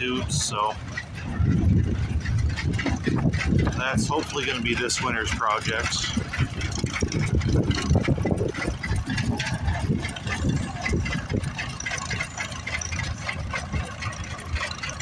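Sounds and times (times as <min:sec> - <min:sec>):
tractor engine idling: 0:00.0 - 0:15.0
wind buffeting microphone: 0:00.0 - 0:15.0.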